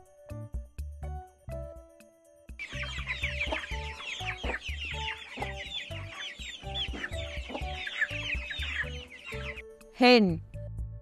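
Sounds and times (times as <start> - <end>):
background music with low beat: 0.0 - 11.0
chicks peeping: 2.6 - 9.7.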